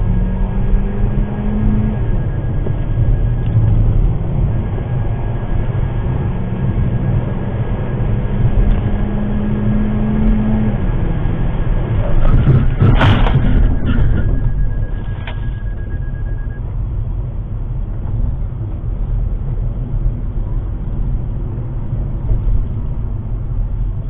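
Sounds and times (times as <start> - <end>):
car engine and tyre rumble: 0.0 - 24.0.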